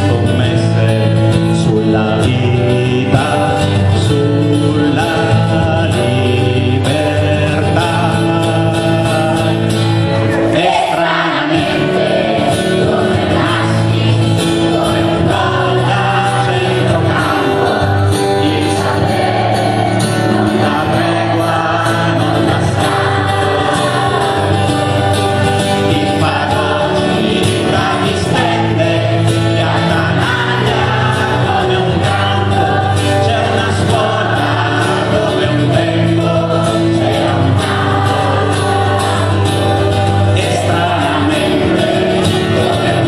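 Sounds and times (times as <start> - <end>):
acoustic guitar: 0.0 - 43.0
live band playing: 0.0 - 43.0
man singing: 0.0 - 43.0
children's choir singing: 10.3 - 43.0.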